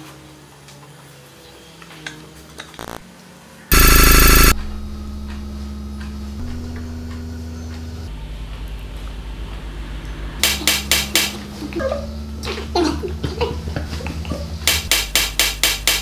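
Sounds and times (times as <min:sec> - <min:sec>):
low hum: 0:03.7 - 0:08.3.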